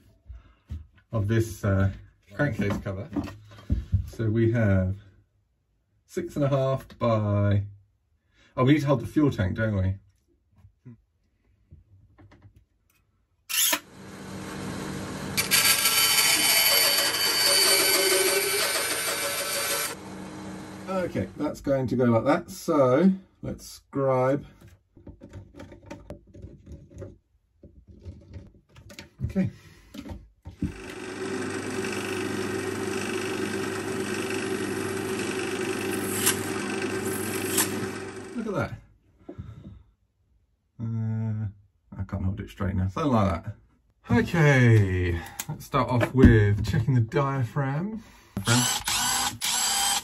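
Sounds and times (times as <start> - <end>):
drill press motor running: 13.5 - 21.4, 30.6 - 38.6, 48.4 - 50.0
bandsaw cutting acrylic: 13.5 - 21.5, 30.6 - 38.6, 48.4 - 50.0.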